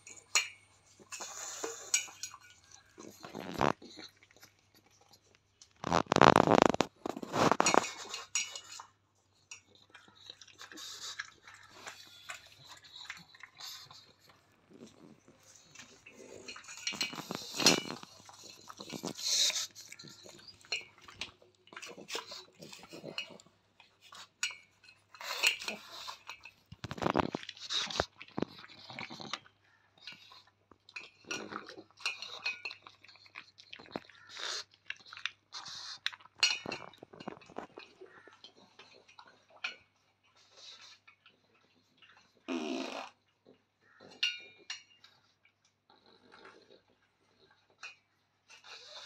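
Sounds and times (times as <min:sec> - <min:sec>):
dog chewing: 0:00.0 - 0:49.0.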